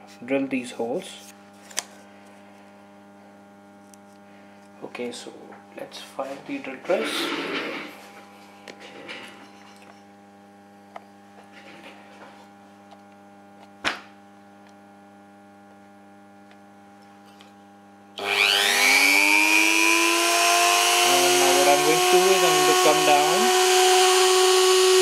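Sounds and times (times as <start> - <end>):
rotary tool whine: 18.2 - 25.0.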